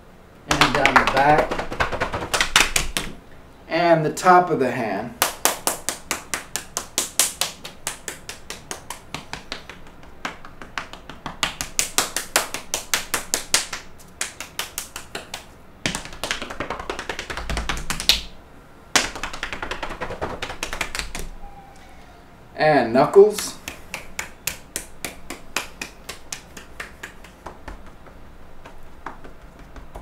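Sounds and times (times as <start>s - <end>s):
hands patting on skin: 0.5s - 3.2s, 5.2s - 18.3s, 18.9s - 21.3s, 23.4s - 30.0s
hands rubbing body: 5.3s - 18.3s, 19.0s - 21.3s, 23.4s - 30.0s.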